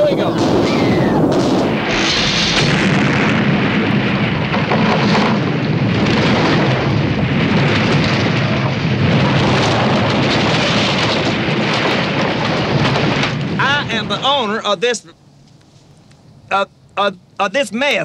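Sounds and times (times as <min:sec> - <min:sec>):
explosive charges going off: 0:00.0 - 0:14.8
wooden structure collapsing: 0:00.4 - 0:14.5.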